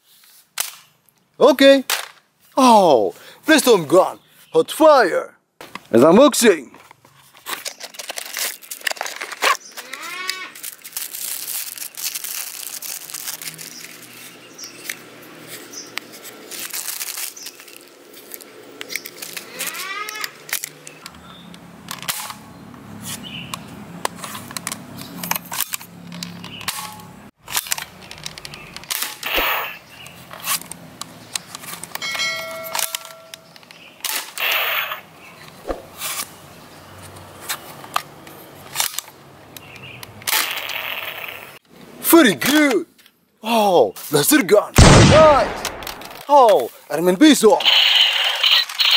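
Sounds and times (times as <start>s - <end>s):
cardboard and plastic rustling: 6.8s - 19.5s.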